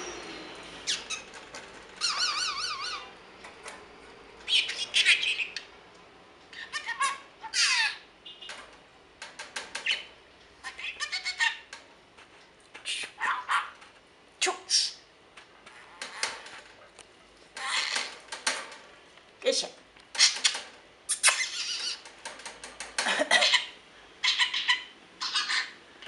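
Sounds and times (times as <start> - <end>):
budgerigar chirping and warbling: 2.0 - 3.1, 4.5 - 5.7, 6.5 - 8.0, 9.8 - 11.7, 13.1 - 13.8, 20.2 - 22.0, 23.4 - 25.8.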